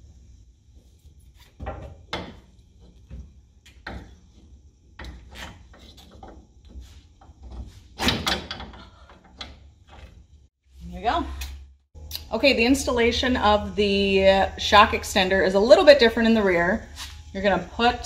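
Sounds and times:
coil spring scraping and knocking: 0:00.7 - 0:10.5.

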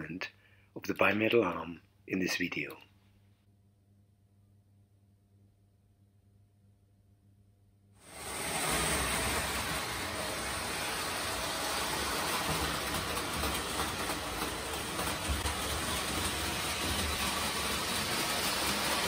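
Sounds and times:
toy train rumbling on metal track: 0:08.0 - 0:19.0.

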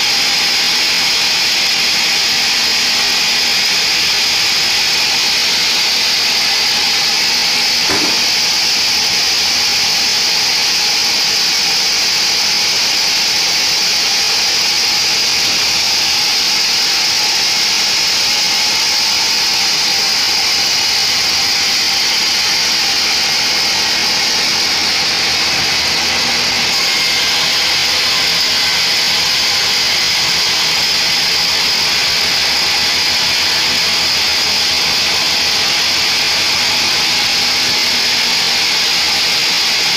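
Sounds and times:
band saw cutting log: 0:00.0 - 0:39.9
short knock: 0:07.8 - 0:08.4.

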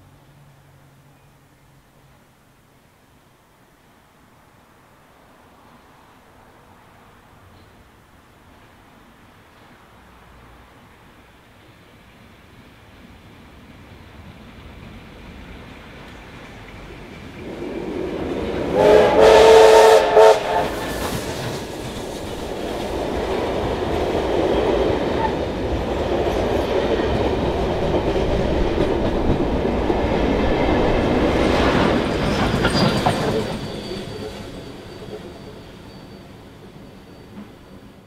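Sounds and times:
carriages rumbling past: 0:12.4 - 0:38.0
train wheels clattering on rails: 0:13.2 - 0:38.0
steam locomotive whistle: 0:18.5 - 0:21.6.

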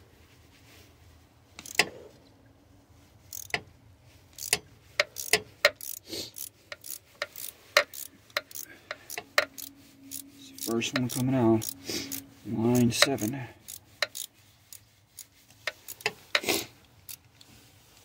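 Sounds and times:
ratchet wrench clicking: 0:01.6 - 0:01.9, 0:03.3 - 0:03.7, 0:04.3 - 0:12.2, 0:12.8 - 0:17.4.

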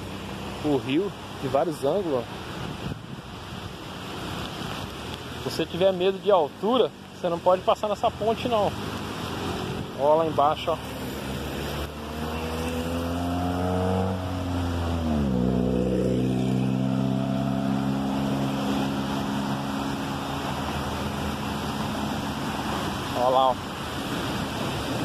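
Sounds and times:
river water rushing over rocks: 0:00.0 - 0:25.0
vehicle engine passing by: 0:08.1 - 0:25.0.

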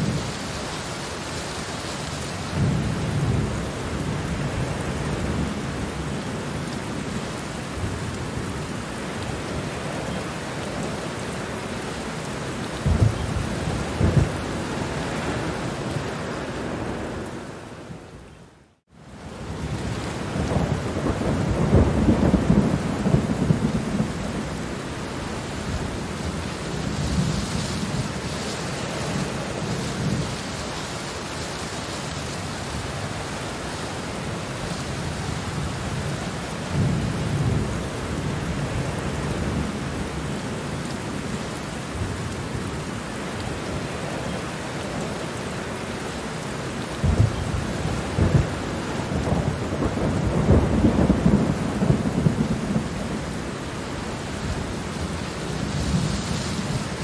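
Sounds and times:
steady rain falling: 0:00.0 - 0:57.0
thunder rumbling: 0:12.8 - 0:18.0, 0:19.4 - 0:24.8, 0:47.0 - 0:57.0.

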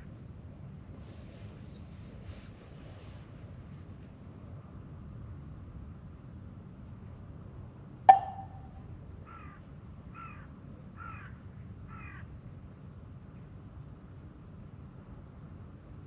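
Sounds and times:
sharp ringing knock: 0:08.1 - 0:08.8.

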